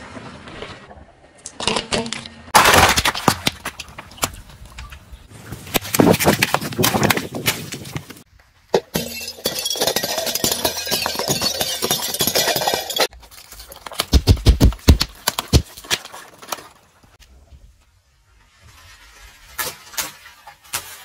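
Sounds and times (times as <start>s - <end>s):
ceramic plates shattering: 8.8s - 13.1s.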